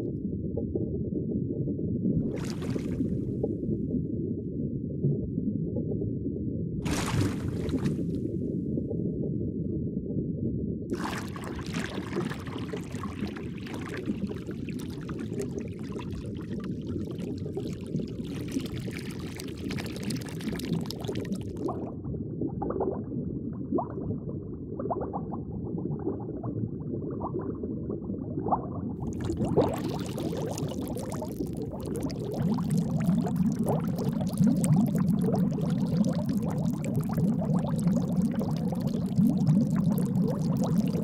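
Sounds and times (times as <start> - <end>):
aquarium water bubbling: 1.6 - 4.6, 6.8 - 8.5, 10.9 - 41.0
bubble pops: 2.2 - 3.5, 6.8 - 8.2, 10.9 - 22.0, 28.4 - 41.0.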